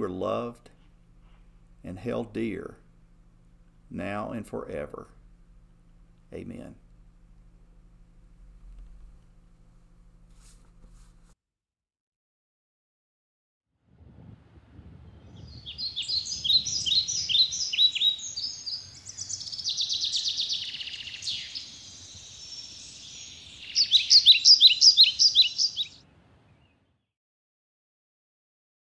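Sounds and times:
songbird singing: 15.1s - 27.0s.

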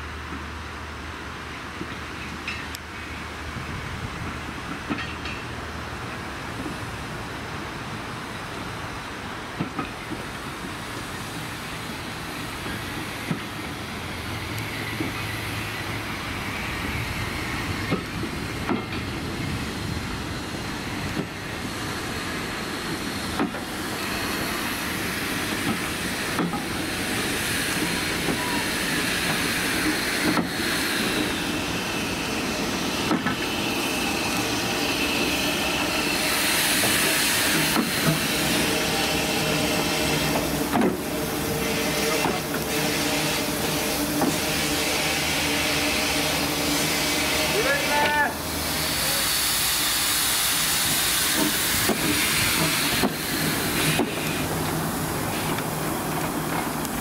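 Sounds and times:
railway coaches rolling: 0.0s - 57.0s
wheels clicking over rail joints: 1.8s - 3.0s, 4.3s - 5.6s, 17.8s - 20.2s, 25.0s - 31.3s, 50.9s - 57.0s
steam hiss: 8.1s - 57.0s.

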